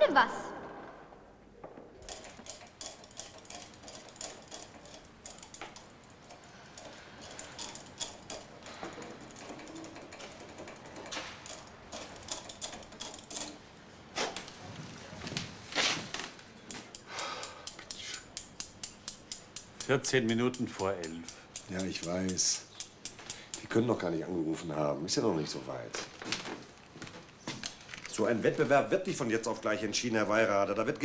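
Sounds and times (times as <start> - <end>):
hand tools clicking and tapping: 1.6 - 14.5, 16.2 - 24.2.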